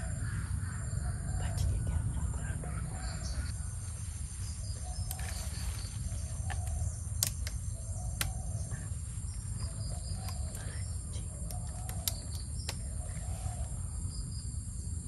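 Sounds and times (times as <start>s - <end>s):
birds calling: 0.0s - 14.5s
high insect drone: 0.0s - 15.0s
sharp clicks: 6.4s - 8.7s, 9.6s - 13.0s.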